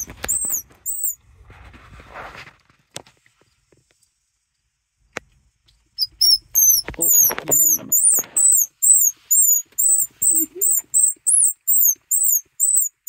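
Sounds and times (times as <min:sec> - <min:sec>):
squirrel call squealing chirps: 0:00.0 - 0:01.2, 0:06.0 - 0:13.0.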